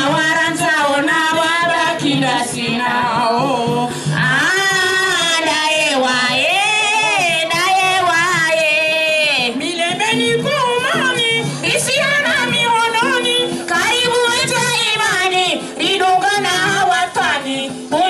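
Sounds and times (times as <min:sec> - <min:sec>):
music: 0:00.0 - 0:18.0.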